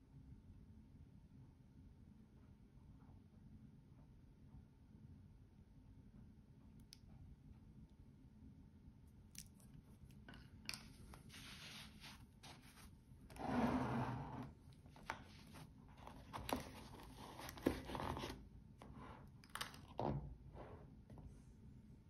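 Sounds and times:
hands rubbing and scraping packaging: 0:10.8 - 0:13.4, 0:14.1 - 0:18.4.

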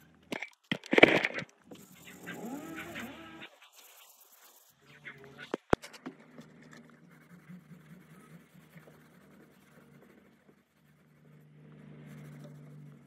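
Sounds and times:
handling and scratching noises: 0:00.0 - 0:13.0
low hum: 0:04.8 - 0:13.0.

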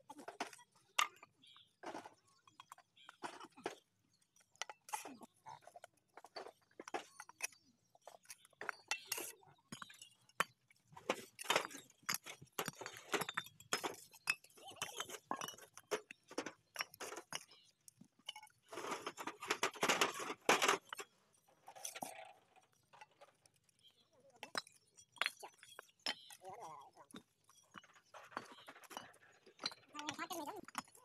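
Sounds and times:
trowel tapping bricks: 0:06.8 - 0:18.4.

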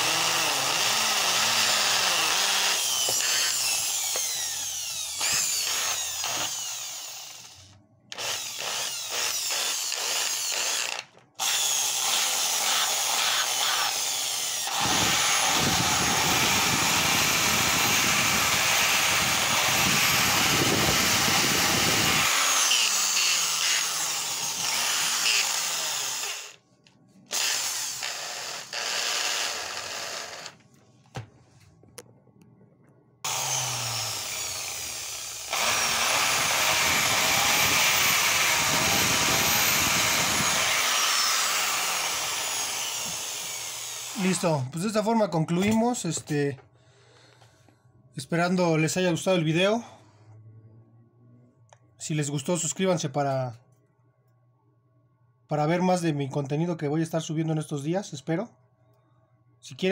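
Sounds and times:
impact drill running: 0:00.0 - 0:26.6, 0:27.3 - 0:30.6, 0:33.2 - 0:44.4.

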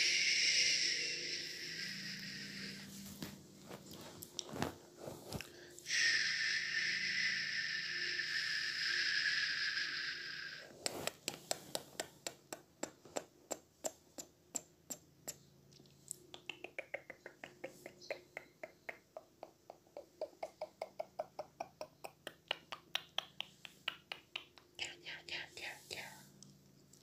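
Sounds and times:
steady hiss: 0:00.0 - 0:15.4, 0:23.2 - 0:27.0.

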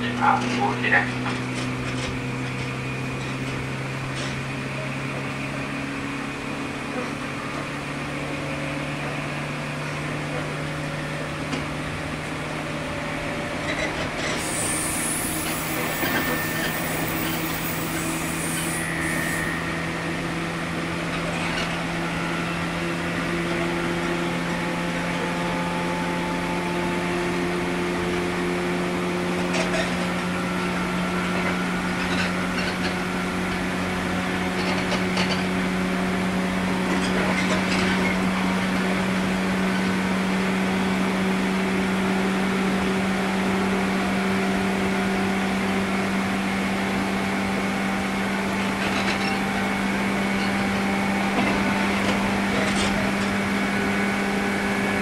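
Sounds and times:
train wheels rumbling on rail: 0:00.0 - 0:55.0
electric motor whine: 0:14.4 - 0:20.5.

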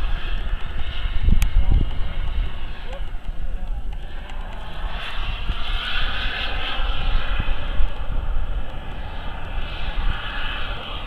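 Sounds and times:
low rumble: 0:00.0 - 0:11.0
model jet turbine whine: 0:00.0 - 0:11.0.

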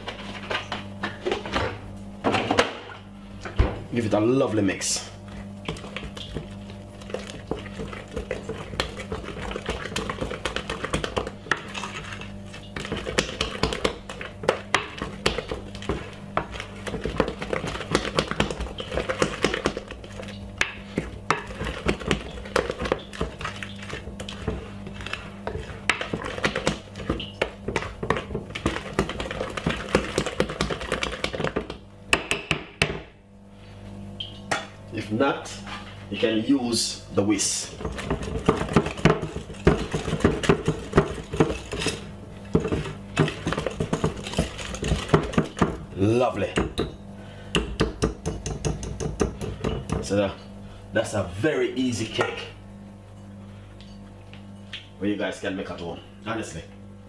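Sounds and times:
wooden spoon beating batter in bowl: 0:05.3 - 0:32.7, 0:37.5 - 0:47.0, 0:47.6 - 0:50.3.

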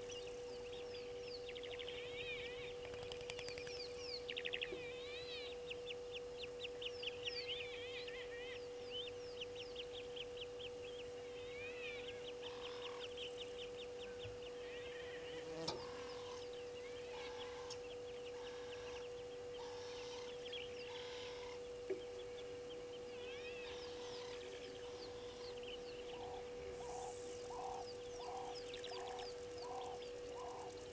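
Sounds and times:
birds chirping: 0:00.0 - 0:30.9
steady low hum: 0:00.0 - 0:30.9.

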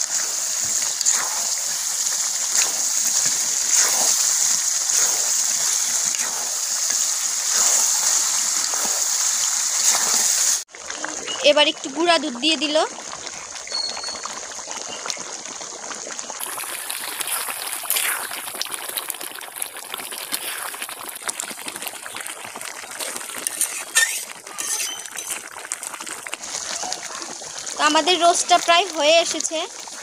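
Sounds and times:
gravy simmering and bubbling: 0:00.0 - 0:30.0
spatula clinking and scraping pan: 0:23.5 - 0:25.4.

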